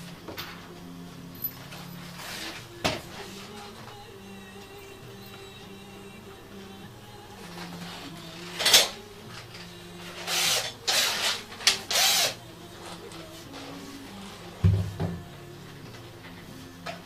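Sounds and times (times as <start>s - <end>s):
faint background music: 0.0s - 17.0s
cordless drill motor bursts: 10.2s - 12.4s.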